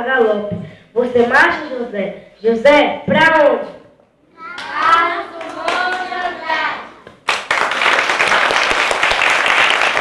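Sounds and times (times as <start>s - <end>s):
group of people applauding: 7.2s - 10.0s.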